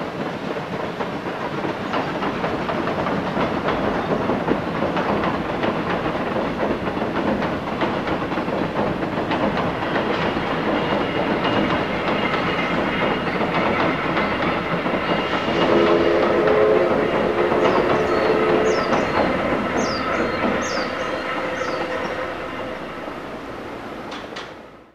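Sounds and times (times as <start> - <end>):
wheels clicking over rail joints: 0.0 - 15.4, 23.9 - 24.8
train rumble: 0.0 - 24.9
steady low tone: 15.5 - 24.0
bird chirping: 17.5 - 22.4.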